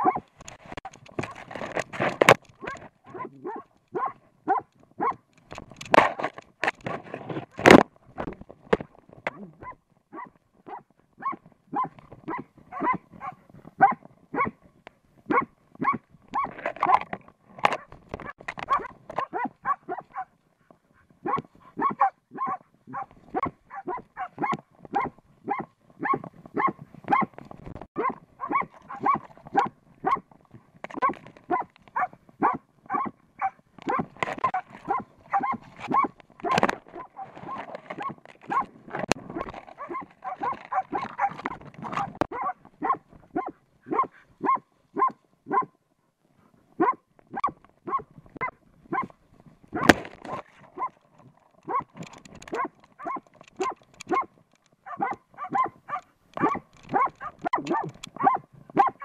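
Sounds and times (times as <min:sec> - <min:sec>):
dog barking rapidly: 0:00.0 - 0:00.2, 0:02.6 - 0:05.2, 0:09.6 - 0:14.6, 0:15.3 - 0:17.0, 0:17.7 - 0:20.3, 0:21.2 - 0:27.3, 0:28.0 - 0:30.2, 0:31.0 - 0:37.3, 0:38.0 - 0:45.7, 0:46.8 - 0:49.1, 0:51.6 - 0:59.0.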